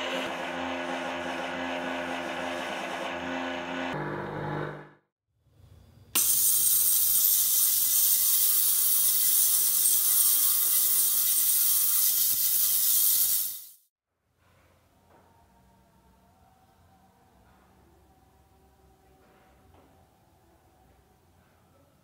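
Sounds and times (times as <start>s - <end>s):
rotary polishing tool humming: 0.0s - 4.8s, 6.2s - 13.8s
ultrasonic cleaner high-pitched hiss: 6.2s - 13.8s.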